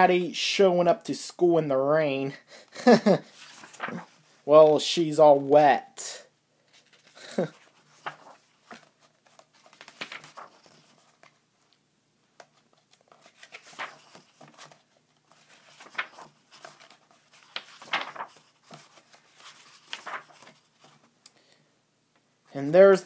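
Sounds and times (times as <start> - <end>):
book pages turning: 3.3 - 4.3, 6.7 - 11.7, 12.4 - 21.2.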